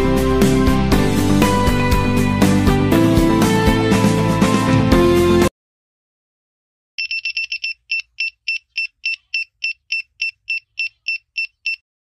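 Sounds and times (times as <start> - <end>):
background music: 0.0 - 5.5
buzzer beeping in short pulses: 7.0 - 11.8.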